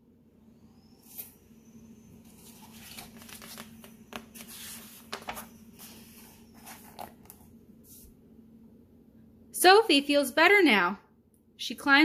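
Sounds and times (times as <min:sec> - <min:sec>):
paper pages rustling: 0:02.2 - 0:08.1.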